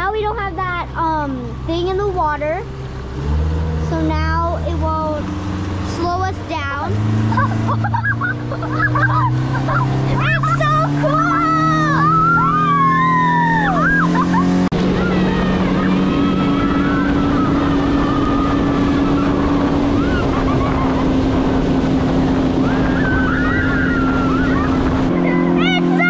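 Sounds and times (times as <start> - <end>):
outboard motor at full throttle: 0.0 - 26.0
water rushing against hull: 0.0 - 26.0
wind rushing: 9.2 - 25.8.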